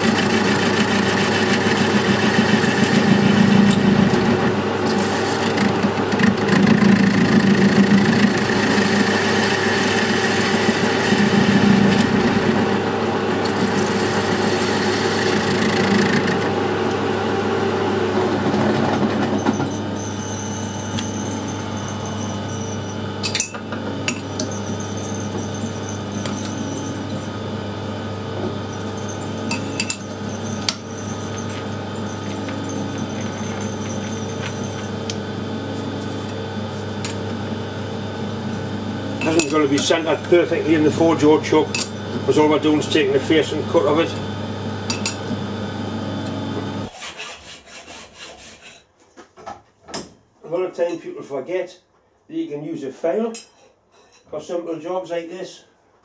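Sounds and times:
metal lathe motor hum: 0.0 - 46.9.

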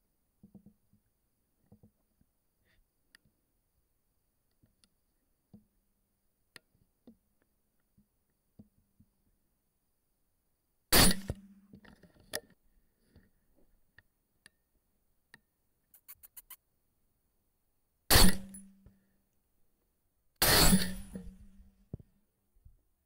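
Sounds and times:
faint clicks: 15.3 - 16.6.

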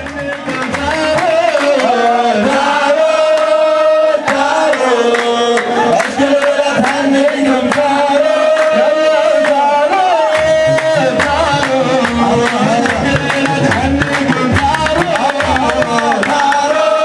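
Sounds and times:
hand drums beating: 0.0 - 3.0, 10.3 - 17.0
man singing into microphone: 0.0 - 17.0.

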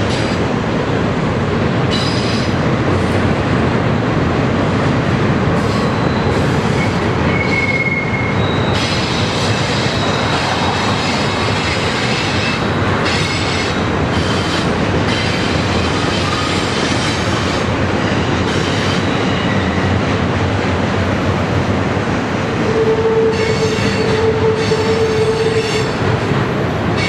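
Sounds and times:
train wheels rumbling on rail: 0.0 - 27.0
high wheel squeals: 5.6 - 13.6.

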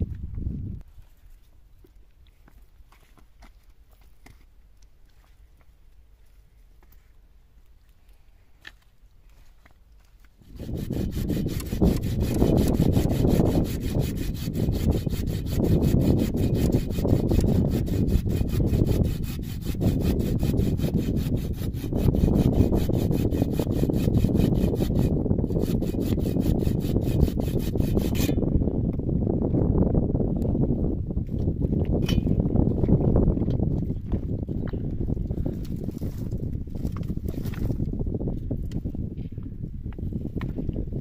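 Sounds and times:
wood being sawn: 10.4 - 28.3.

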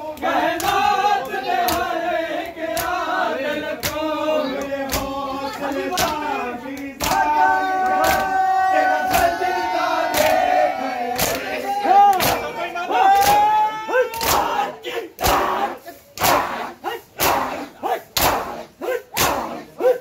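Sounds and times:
men chanting together: 0.0 - 20.0
hands slapping chests: 0.2 - 3.0, 3.8 - 5.2, 5.9 - 7.3, 7.9 - 8.3, 11.2 - 11.5, 12.1 - 12.5, 13.1 - 13.5, 14.1 - 14.6, 16.2 - 16.6, 18.2 - 19.6.

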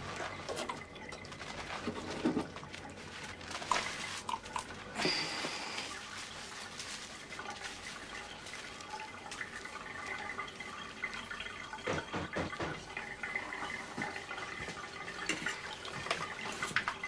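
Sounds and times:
wet squish of shampoo lather: 0.0 - 10.5
bathwater sloshing: 0.0 - 17.0
water splashes: 0.0 - 17.0.

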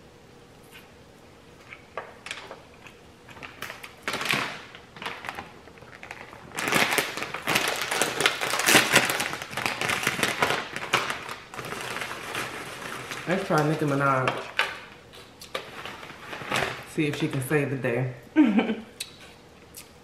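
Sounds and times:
plastic chip bag crinkling: 1.7 - 17.5.

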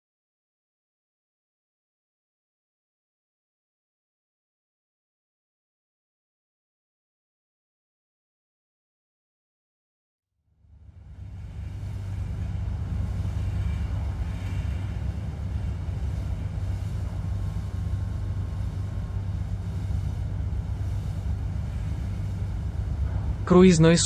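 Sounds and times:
ship engine rumble: 10.6 - 24.0.

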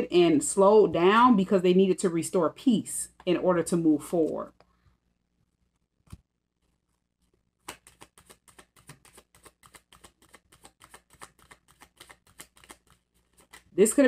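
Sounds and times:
cards shuffling: 6.0 - 14.0.

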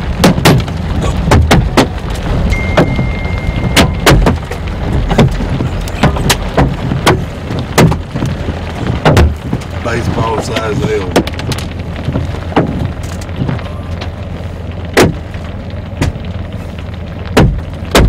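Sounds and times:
hailstones banging on car roof: 0.0 - 18.0
rumble of hail and road noise: 0.0 - 18.0
short steady beep: 2.5 - 4.0.

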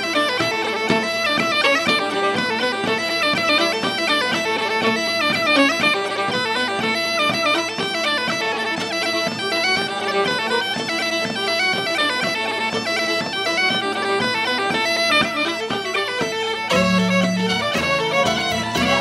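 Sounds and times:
bagpipe melody over drones: 0.0 - 19.0
regular drum beat: 0.1 - 19.0.

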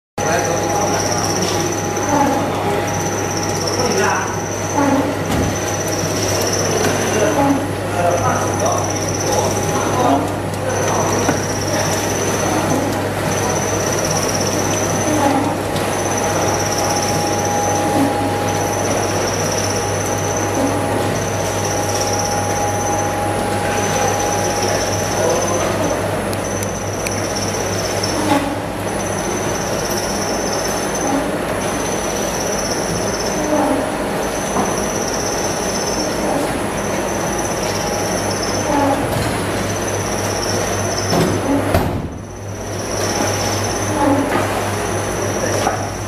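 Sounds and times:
pulsing high whine: 11.0 - 38.8.

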